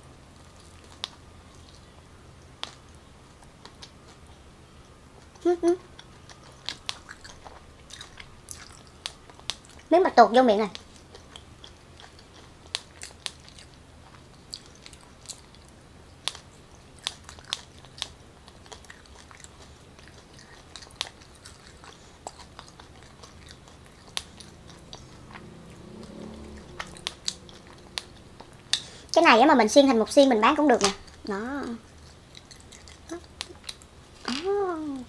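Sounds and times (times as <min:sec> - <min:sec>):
person chewing wet clicks: 0:00.4 - 0:09.9, 0:10.7 - 0:29.2, 0:30.8 - 0:34.0.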